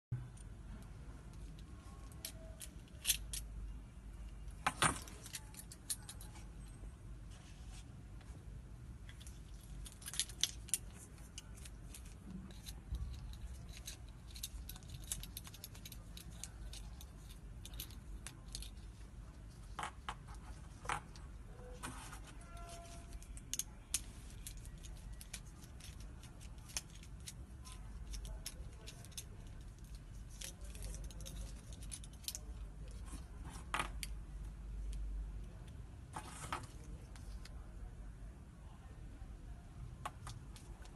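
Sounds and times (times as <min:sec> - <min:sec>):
metal ring clicking and clinking: 0:01.4 - 0:03.6, 0:04.8 - 0:06.5, 0:09.1 - 0:19.0, 0:22.5 - 0:33.0
keys jangling: 0:11.4 - 0:18.8.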